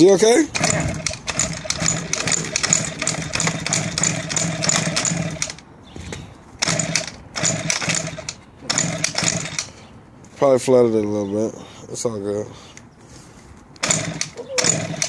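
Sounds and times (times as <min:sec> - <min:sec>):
two-stroke engine sputtering: 0:00.5 - 0:05.6, 0:06.6 - 0:09.7, 0:13.8 - 0:15.0.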